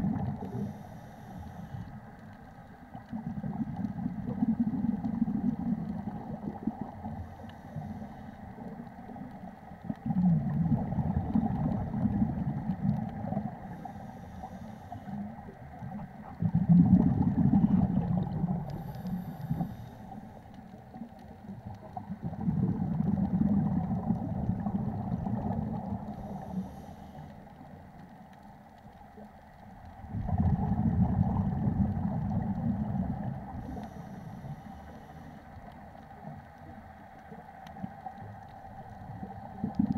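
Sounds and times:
diver exhaling bubbles: 0.0s - 0.8s, 3.1s - 7.2s, 9.9s - 13.8s, 16.2s - 19.8s, 22.0s - 26.5s, 30.1s - 34.2s, 39.1s - 39.9s
underwater hum: 0.0s - 39.9s.

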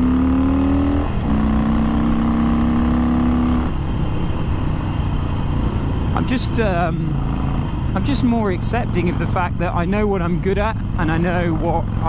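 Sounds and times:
motorcycle engine under throttle: 0.0s - 12.0s.

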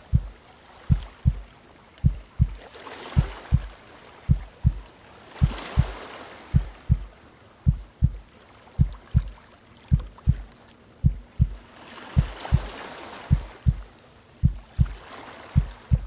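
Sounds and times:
heartbeat thumps: 0.0s - 8.2s, 8.8s - 10.4s, 11.0s - 11.6s, 12.2s - 15.0s, 15.6s - 16.0s
ocean waves: 0.0s - 16.0s.

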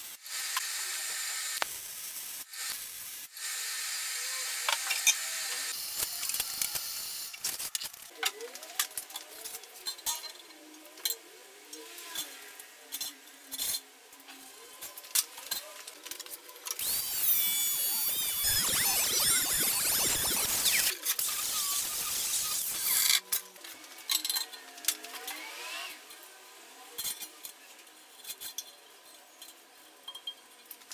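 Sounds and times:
welding arc crackling and hissing: 0.0s - 5.0s, 5.6s - 8.1s, 16.8s - 23.2s
scattered clicks and handling sounds: 12.9s - 21.2s.

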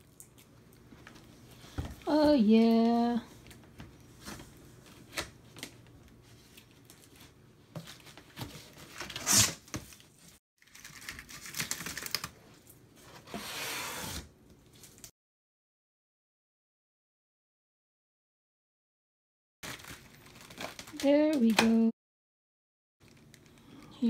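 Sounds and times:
plastic wrap crinkling and tearing: 8.8s - 12.8s, 19.6s - 21.1s.

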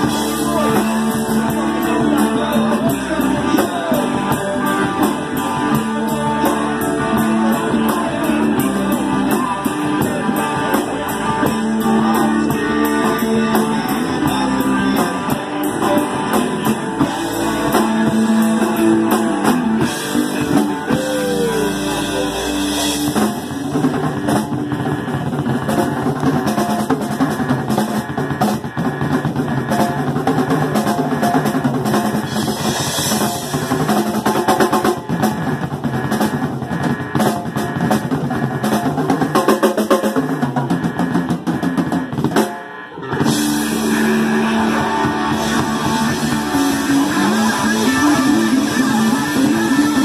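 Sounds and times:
bass guitar: 0.0s - 50.0s
drum kit: 0.0s - 50.0s
electric guitars: 0.0s - 50.0s.

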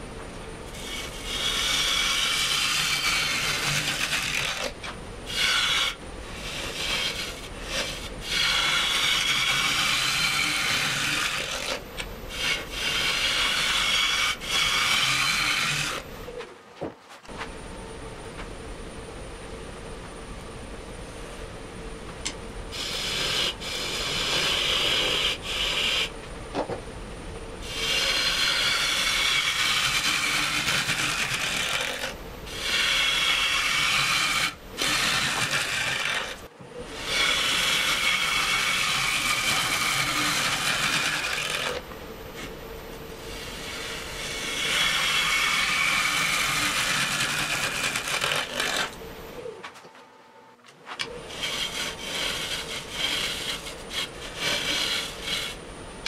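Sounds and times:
lathe motor hum: 0.0s - 16.5s, 21.7s - 49.8s, 51.0s - 56.0s
gouge cutting wet wood: 0.7s - 16.1s, 22.8s - 26.1s, 27.6s - 41.8s, 43.4s - 49.0s, 51.0s - 55.6s.

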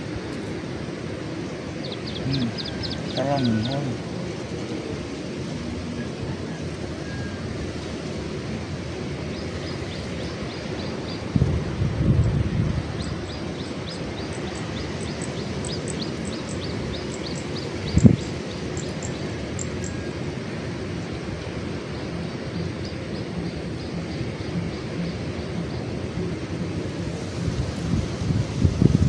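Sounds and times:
wind rumbling on microphone: 0.0s - 29.0s
bird chirping: 1.8s - 4.0s, 12.9s - 20.1s.

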